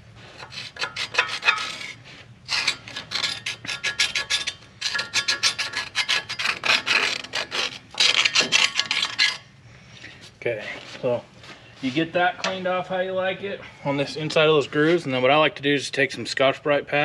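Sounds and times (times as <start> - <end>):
screwdriver scraping rust: 0.3 - 9.5.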